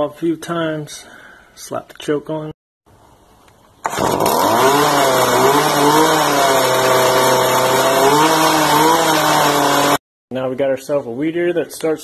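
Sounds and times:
string trimmer engine running: 0:03.8 - 0:10.0.

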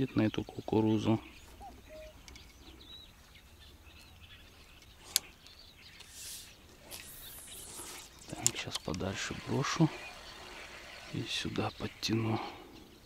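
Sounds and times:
faint birds chirping: 0:00.0 - 0:13.0
hissing rustles: 0:04.6 - 0:12.0.

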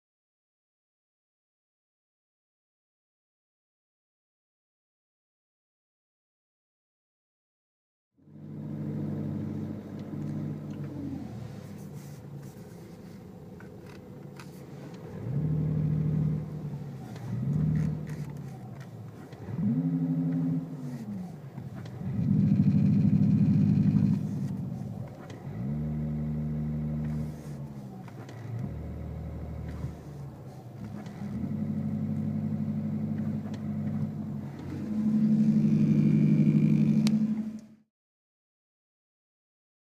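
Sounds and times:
simulated engine revving: 0:08.2 - 0:13.2, 0:14.4 - 0:37.8.

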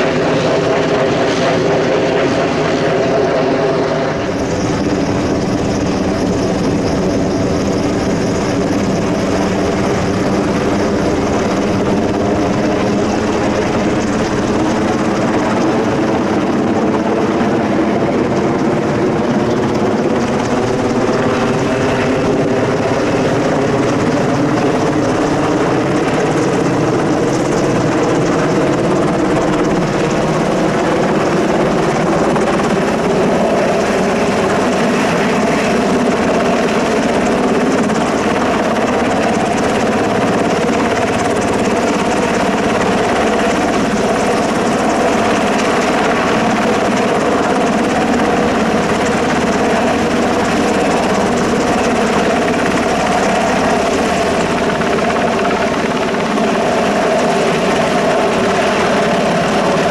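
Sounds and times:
helicopter flying: 0:00.0 - 0:59.9.

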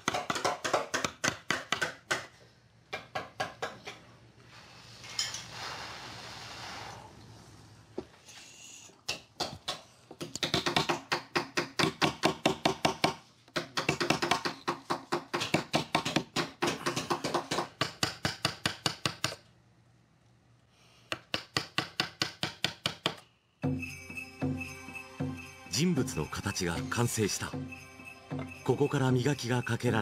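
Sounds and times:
mallet tapping chisel into wood: 0:00.0 - 0:02.3, 0:21.1 - 0:23.2.

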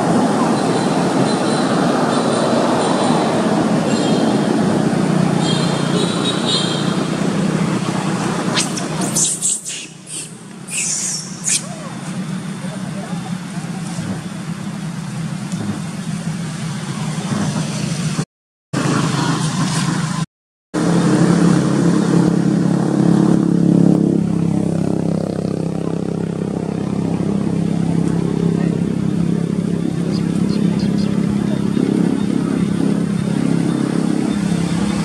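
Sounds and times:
vehicle engine running: 0:00.0 - 0:18.2.

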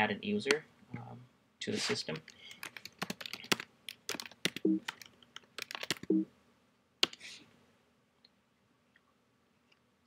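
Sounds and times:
computer keyboard typing: 0:02.2 - 0:06.2.

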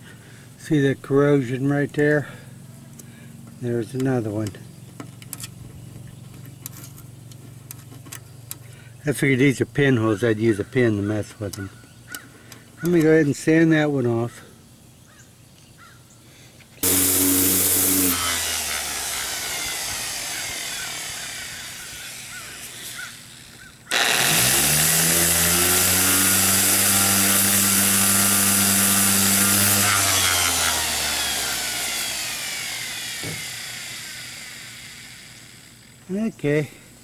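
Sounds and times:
orbital sander running: 0:16.8 - 0:36.2.

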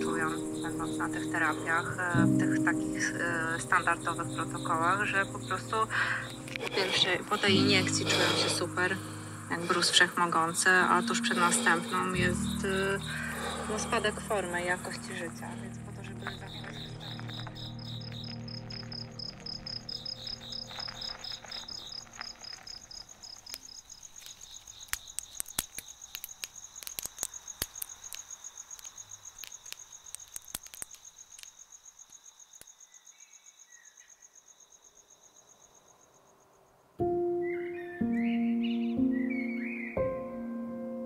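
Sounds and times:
campfire crackling and popping: 0:00.0 - 0:32.8
crickets chirping: 0:00.0 - 0:40.6.

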